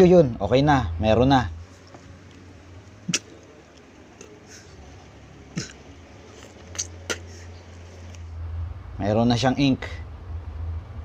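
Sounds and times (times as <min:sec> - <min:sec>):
mouth clicks and lip smacks: 0:01.8 - 0:04.7, 0:05.5 - 0:08.2
throaty falling vocal sound: 0:05.5 - 0:05.9.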